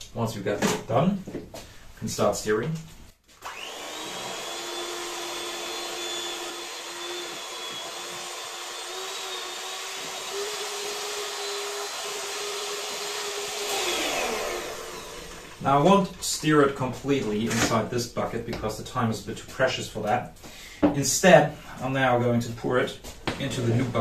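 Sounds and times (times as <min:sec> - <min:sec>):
electric hand mixer whining: 0:03.4 - 0:15.7.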